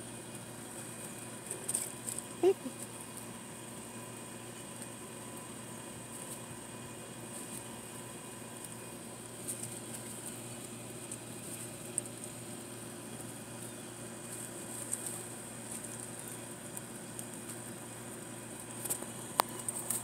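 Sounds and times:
small clicks and rustles: 0.3s - 3.3s, 6.1s - 6.6s, 7.3s - 7.8s, 8.5s - 12.4s, 13.1s - 20.0s.

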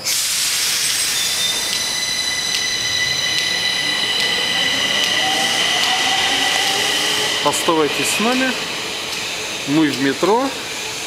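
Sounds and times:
high whining tones: 0.0s - 11.0s
metro train running: 0.0s - 11.0s.

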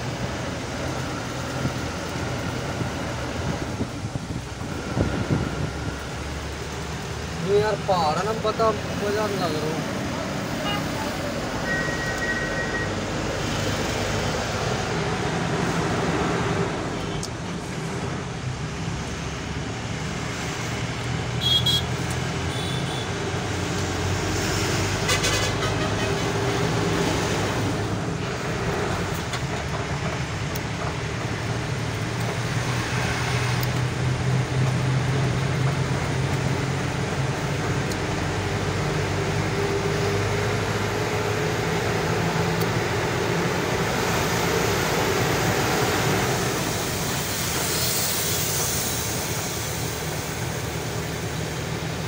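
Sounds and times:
road and wind noise: 0.0s - 52.0s
short high beep: 11.6s - 13.0s.

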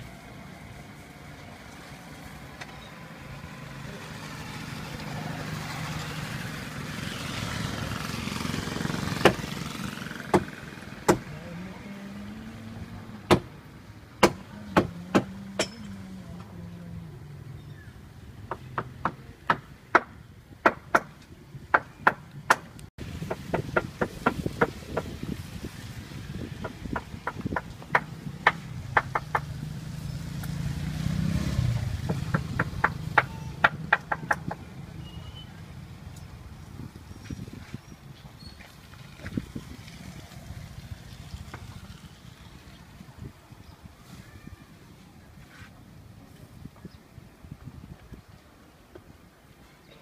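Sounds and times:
vehicle engine passing: 0.0s - 20.0s, 22.2s - 37.5s, 38.8s - 43.0s
sharp loud knocks: 9.2s - 11.3s, 13.3s - 13.5s, 14.2s - 15.8s, 18.5s - 25.2s, 26.6s - 29.5s, 31.9s - 34.7s.

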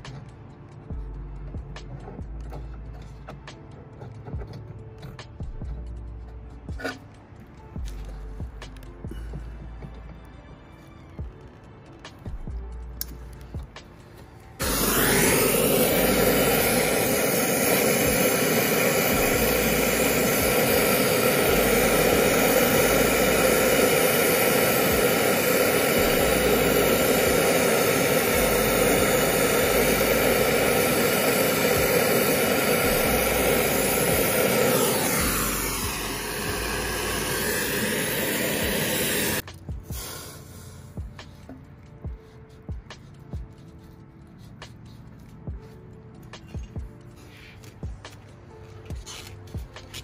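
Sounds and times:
torch flame rushing: 14.5s - 40.2s.

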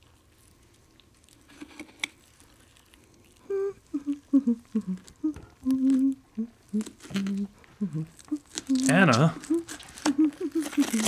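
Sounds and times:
person humming a tune: 3.4s - 11.0s.

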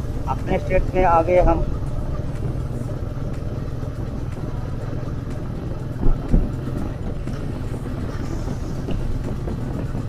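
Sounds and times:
motorcycle engine rumble: 0.0s - 10.0s
wind and road noise: 0.0s - 10.0s
short thumps: 5.9s - 7.5s.

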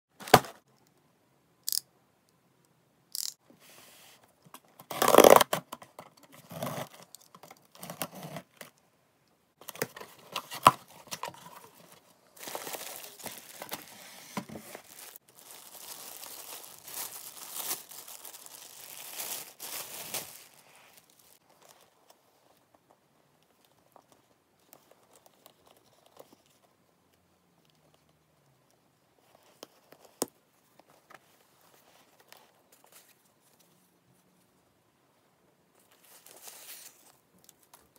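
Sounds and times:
faint handling sounds: 9.5s - 37.9s
plastic wrap crinkling: 10.7s - 21.8s
packaging tearing: 14.7s - 20.6s.

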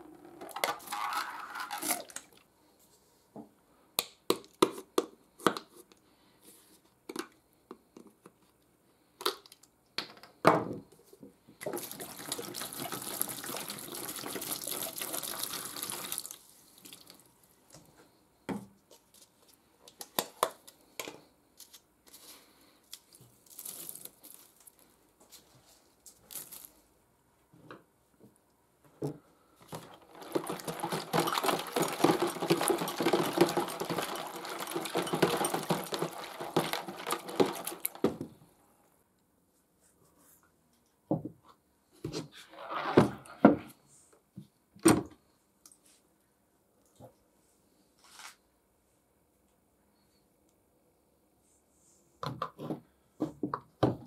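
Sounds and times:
liquid sloshing: 11.6s - 17.2s, 29.7s - 38.2s
liquid pouring into plastic tub: 11.6s - 17.3s, 29.7s - 38.3s.

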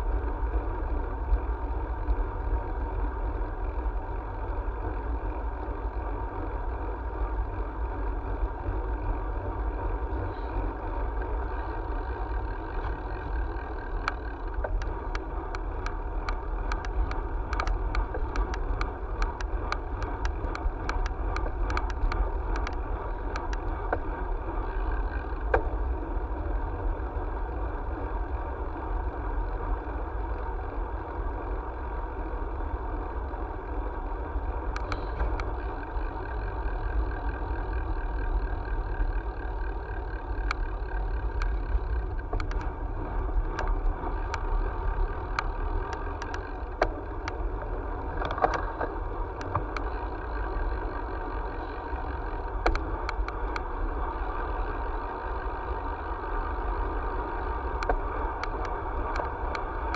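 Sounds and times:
road noise: 0.0s - 59.9s
light clicks and rattles: 12.4s - 25.8s, 34.6s - 53.9s, 56.5s - 59.9s.

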